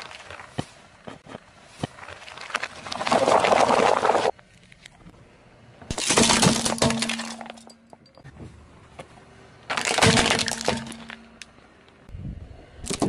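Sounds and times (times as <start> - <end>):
plastic toys cracking under tyre: 9.7 - 11.5.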